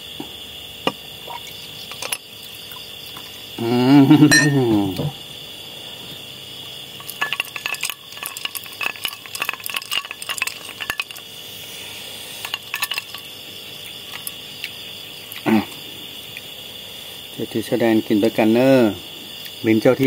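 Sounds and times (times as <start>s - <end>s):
crickets chirring: 0.0s - 20.0s
ice cubes clinking in glass: 4.3s - 4.7s, 7.0s - 11.3s, 12.4s - 13.2s.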